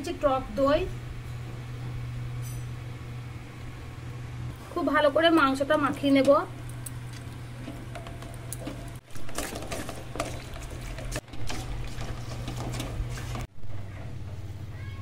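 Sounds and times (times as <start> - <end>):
steady low hum: 0.0 - 14.8.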